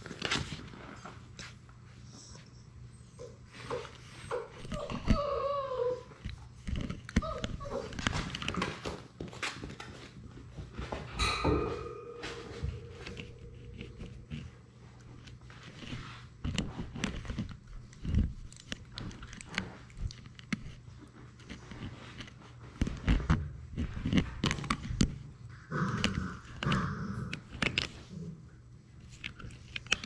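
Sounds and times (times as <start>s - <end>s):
puppy chewing on camera: 3.5s - 10.1s, 13.1s - 30.0s.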